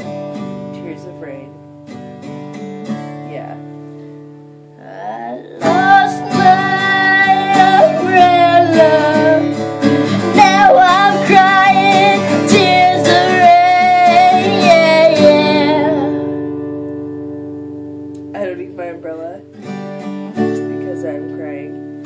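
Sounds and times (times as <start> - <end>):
strummed acoustic guitar: 0.0 - 22.0
person singing wordless vocal: 4.8 - 16.3.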